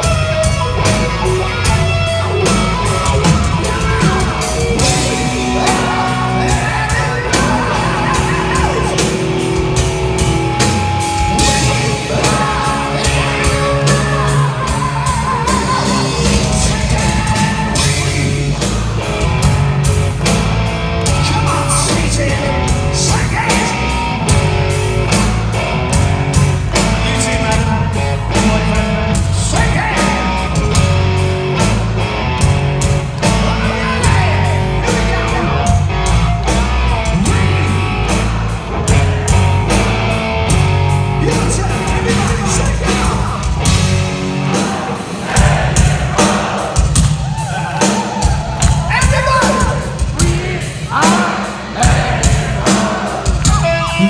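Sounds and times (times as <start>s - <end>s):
bass guitar: 0.0s - 54.0s
distorted electric guitars: 0.0s - 54.0s
steady drum beat: 0.0s - 54.0s
person singing: 11.2s - 18.5s.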